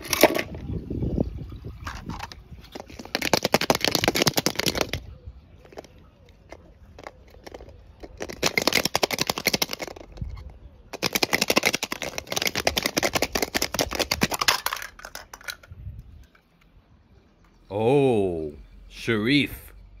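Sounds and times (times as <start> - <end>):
toy cars clattering over stones: 0.0 - 0.6, 1.8 - 16.5.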